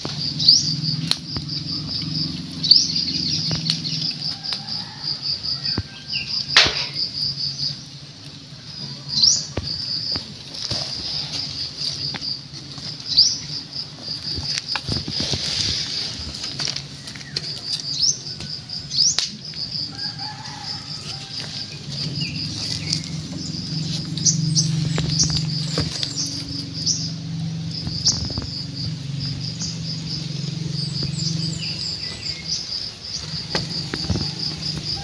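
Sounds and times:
insects chirping: 0.0 - 35.0
kittens scuffling on dirt: 9.0 - 18.8, 19.8 - 35.0
low hum: 21.3 - 34.9.

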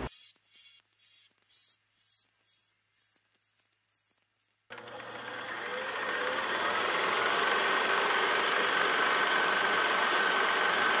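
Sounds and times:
small machine clicking: 4.7 - 11.0.

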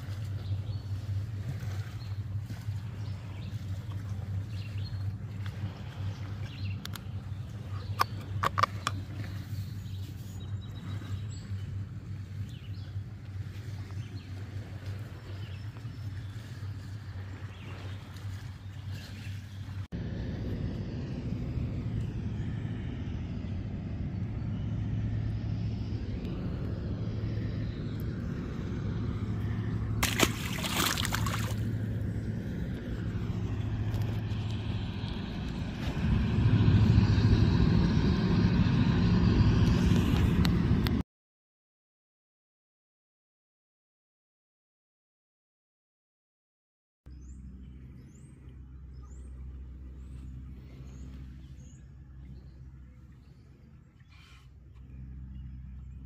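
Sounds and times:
boat engine droning: 0.0 - 41.0, 47.1 - 56.0
steady low rumble: 0.0 - 41.0, 47.1 - 56.0
fishing rods clicking and knocking: 7.9 - 9.3
fish splashing into water: 30.0 - 31.9.

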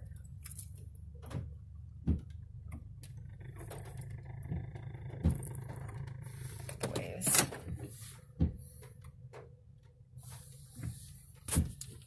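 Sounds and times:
car cabin rumble: 0.0 - 12.0
dull thump: 8.4 - 8.8.

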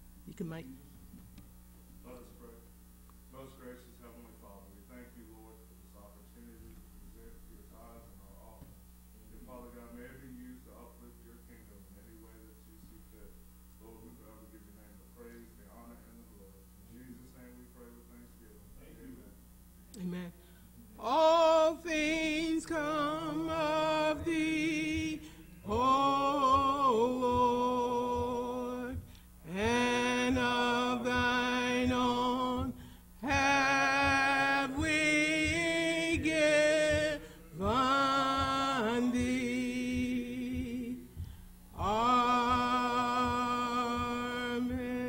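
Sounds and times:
unaccompanied hymn singing: 20.8 - 45.0
soft taps keeping time: 22.4 - 44.9.

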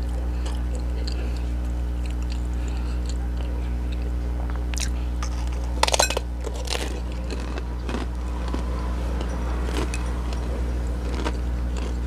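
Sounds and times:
chewing crunches: 0.0 - 12.0
steady low hum: 0.0 - 12.0
crunchy bite into burger: 4.5 - 12.0.

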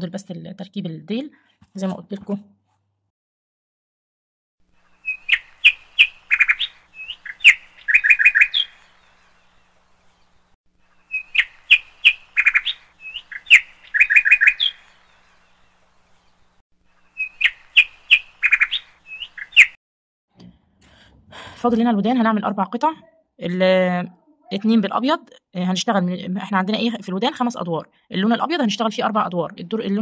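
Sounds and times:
bird chirping and trilling: 4.9 - 10.4, 11.0 - 19.8.

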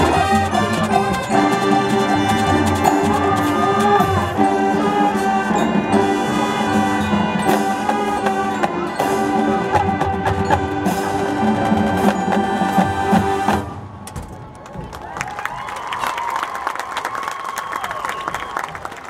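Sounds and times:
brass chords: 0.0 - 14.0
marching band playing: 0.0 - 14.9
drumline: 0.0 - 16.1
marimba and chimes: 0.4 - 13.4.

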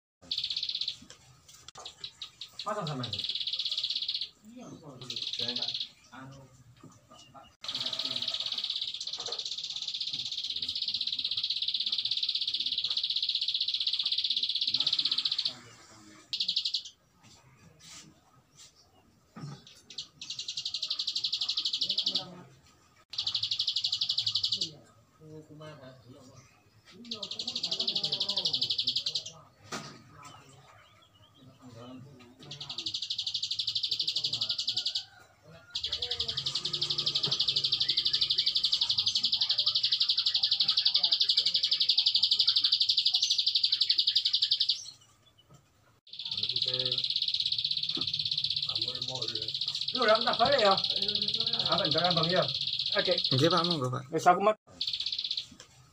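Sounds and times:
bird singing high trill: 0.2 - 1.1, 1.8 - 6.4, 7.6 - 15.7, 16.3 - 17.0, 19.8 - 22.4, 23.1 - 24.8, 27.0 - 29.4, 30.8 - 45.4, 46.1 - 53.9, 54.7 - 55.6.

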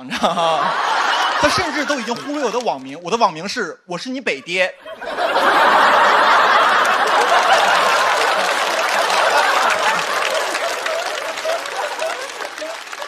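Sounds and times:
studio audience laughing: 0.0 - 2.9, 4.4 - 13.0
audience clapping: 0.7 - 3.0, 5.3 - 13.0.

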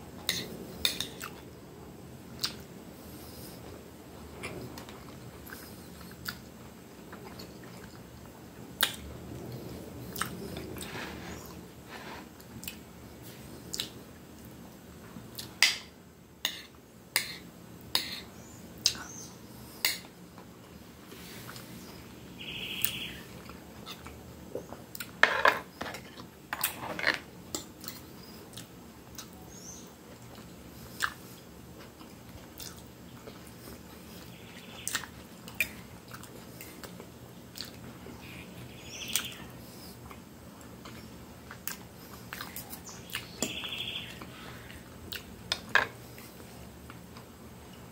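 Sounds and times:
chewing: 4.4 - 6.5, 30.1 - 38.4, 39.2 - 43.4.

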